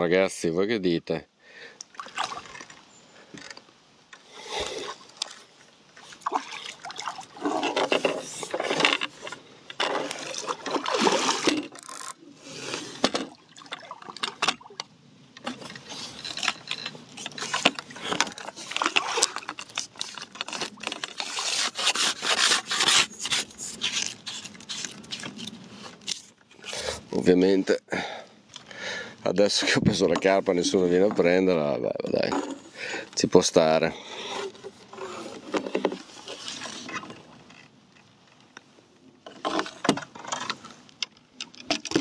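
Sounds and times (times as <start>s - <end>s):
rubbing and scraping on microphone: 7.3s - 13.2s, 15.6s - 27.6s, 29.4s - 37.5s.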